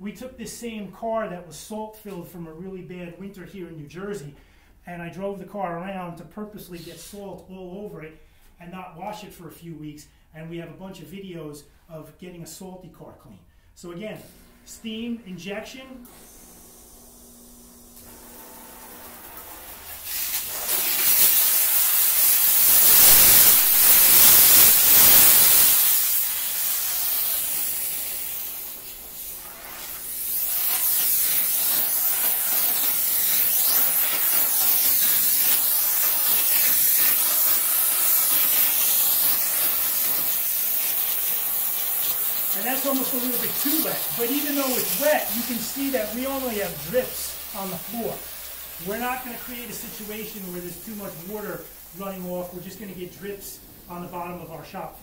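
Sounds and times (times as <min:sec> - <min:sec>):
steam cleaner hissing: 0:15.8 - 0:55.0.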